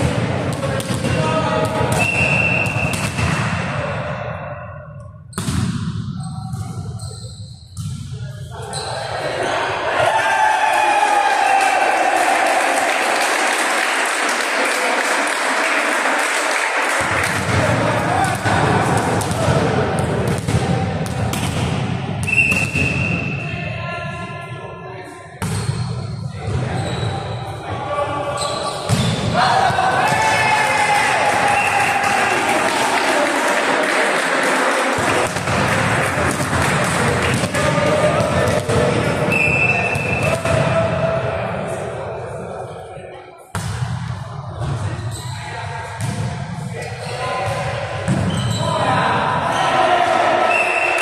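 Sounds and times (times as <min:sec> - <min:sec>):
volleyball bouncing on gym floor: 0:00.0 - 0:03.6, 0:05.3 - 0:06.8, 0:17.0 - 0:23.2, 0:35.0 - 0:40.7
referee's whistle: 0:02.0 - 0:03.1, 0:22.2 - 0:23.5, 0:39.3 - 0:40.4, 0:50.5 - 0:51.0
volleyball hit echoing: 0:05.4 - 0:06.0.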